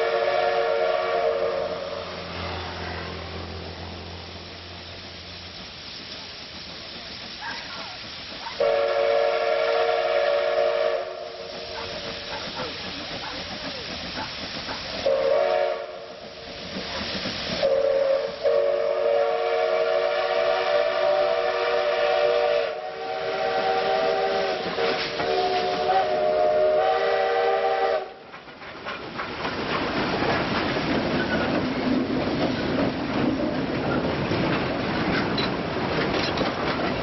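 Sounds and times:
steam locomotive whistle: 0:00.0 - 0:04.0, 0:08.5 - 0:12.0, 0:15.0 - 0:16.4, 0:17.6 - 0:28.3
train rumble and wheel clatter: 0:00.0 - 0:37.0.

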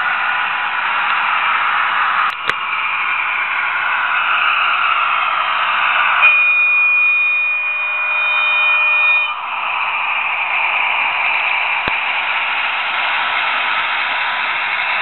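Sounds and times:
hissy diesel engine sound effect: 0:00.0 - 0:15.0
multi-tone horn: 0:06.2 - 0:09.4.

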